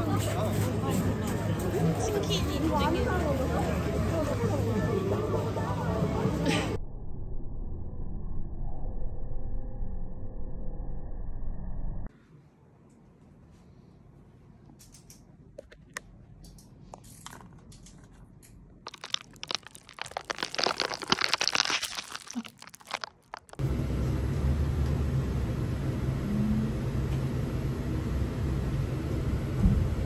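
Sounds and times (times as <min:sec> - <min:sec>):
foil and plastic crunching: 0:18.9 - 0:23.6.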